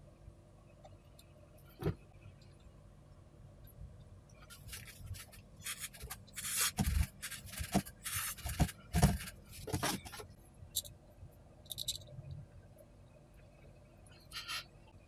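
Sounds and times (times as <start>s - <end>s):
tools scraping on circuit board: 4.5s - 10.2s.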